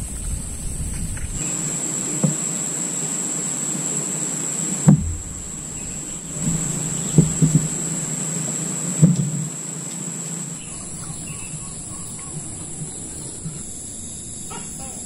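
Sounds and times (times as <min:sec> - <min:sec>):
insects droning: 0:00.0 - 0:15.0
dull knocks: 0:04.8 - 0:08.2, 0:09.0 - 0:09.5.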